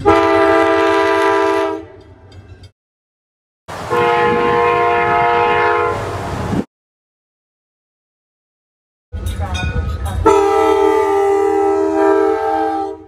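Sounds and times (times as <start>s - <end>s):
train air horn chord: 0.0s - 2.0s, 3.9s - 6.1s, 10.2s - 13.0s
low rumble of train: 0.0s - 2.7s, 3.7s - 6.7s, 9.1s - 13.0s.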